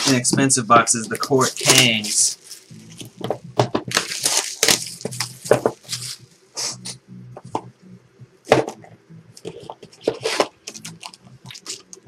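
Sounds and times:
plastic shrink-wrap tearing: 0:01.1 - 0:03.0, 0:03.9 - 0:06.2.

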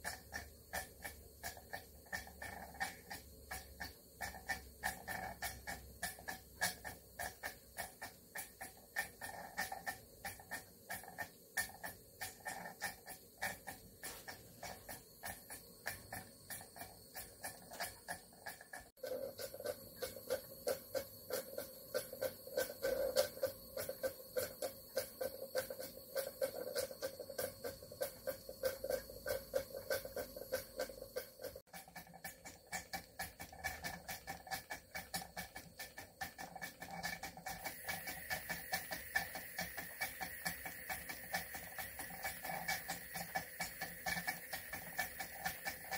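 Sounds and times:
model steam engine puffing: 0:36.2 - 0:45.9.

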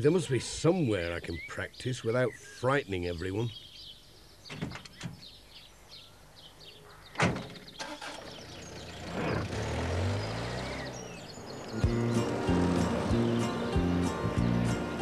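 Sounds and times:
birdsong chirping: 0:00.0 - 0:15.0
van door slamming: 0:07.2 - 0:07.8
van engine running: 0:07.8 - 0:15.0.

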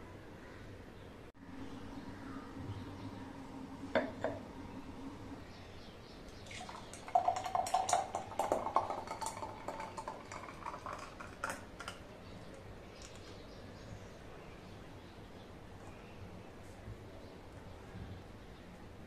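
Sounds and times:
milkshake pouring into glass: 0:06.4 - 0:12.0.

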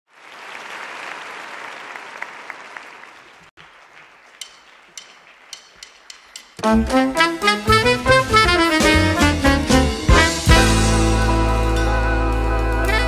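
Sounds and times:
audience applause: 0:00.1 - 0:05.7
band playing: 0:04.4 - 0:13.0.

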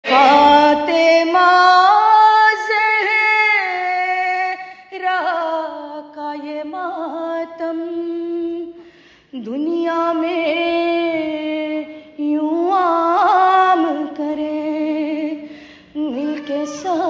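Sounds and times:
person singing a lament: 0:00.0 - 0:05.5, 0:09.8 - 0:17.0.

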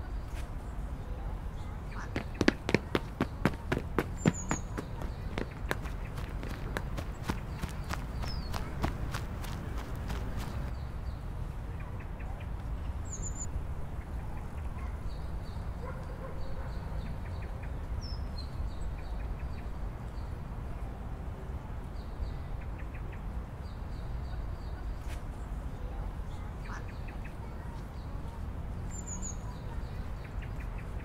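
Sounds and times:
birds chirping: 0:00.7 - 0:11.2
low outdoor rumble: 0:01.2 - 0:10.8.

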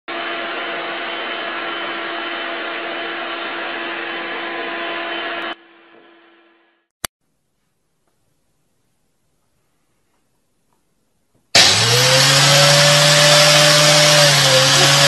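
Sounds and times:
vacuum cleaner running: 0:00.1 - 0:06.5, 0:11.6 - 0:15.0.

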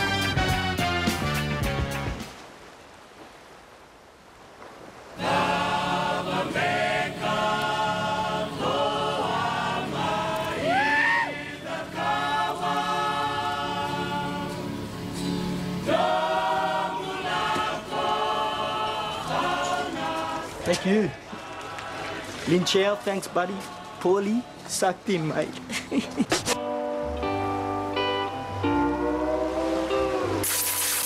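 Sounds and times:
choir singing held chords: 0:05.2 - 0:22.6, 0:23.2 - 0:24.6, 0:26.8 - 0:30.4.

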